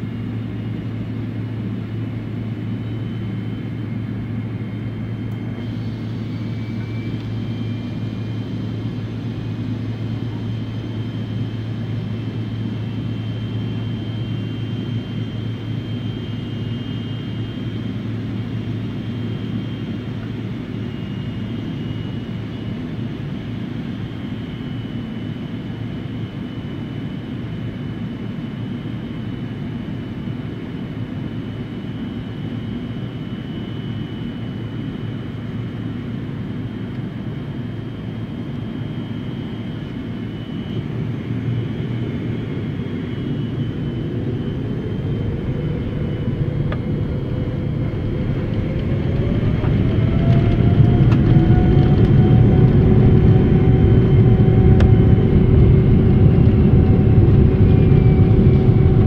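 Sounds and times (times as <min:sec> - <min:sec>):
faint high-pitched engine whine: 0:00.0 - 0:59.0
jet engines low rumble: 0:00.0 - 0:59.0.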